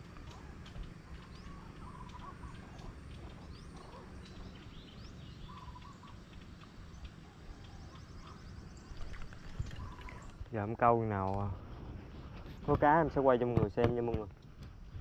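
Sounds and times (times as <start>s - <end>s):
birds chirping and calling: 0.0s - 10.6s
low steady rumble: 0.0s - 15.0s.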